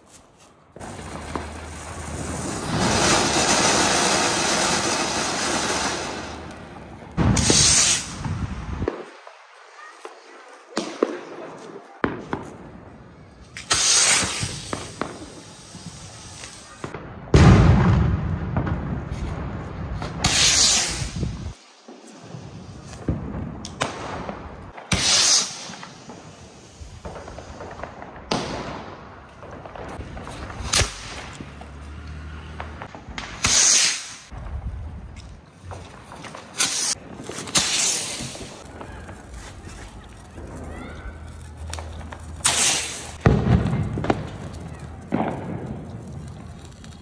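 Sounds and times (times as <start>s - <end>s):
firecrackers popping and cracking: 0.7s - 47.0s
rushing firework burst: 0.8s - 8.8s, 13.6s - 16.9s, 20.0s - 21.6s, 24.9s - 28.2s, 32.6s - 34.3s, 36.5s - 39.2s, 42.4s - 44.2s
loud firework bang: 16.8s - 21.4s, 42.4s - 44.4s.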